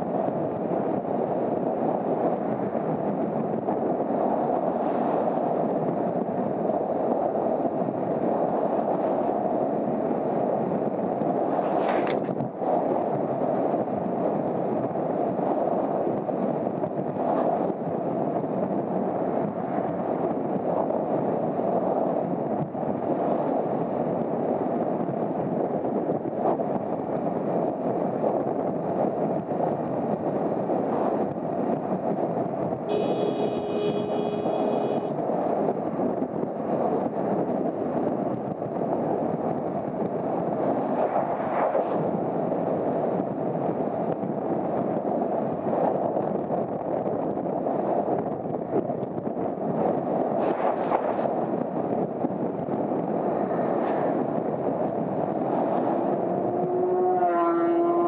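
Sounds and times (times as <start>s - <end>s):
wind rushing over microphone: 0.0s - 58.0s
steady high tone: 32.9s - 35.1s.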